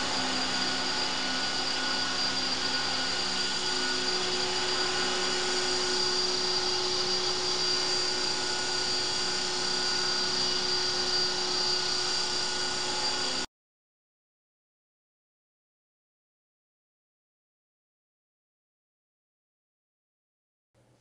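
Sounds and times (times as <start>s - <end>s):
high whine of motor and gears: 0.0s - 13.5s.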